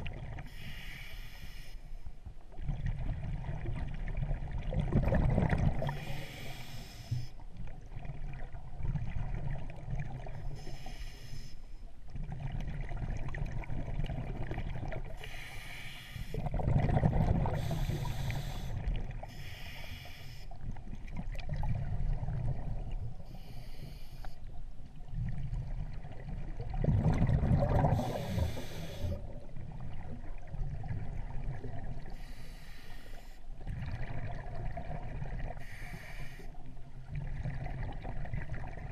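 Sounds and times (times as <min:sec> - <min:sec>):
muffled underwater rumble: 0:00.0 - 0:38.9
short hissing bursts: 0:00.5 - 0:01.8, 0:19.3 - 0:20.4.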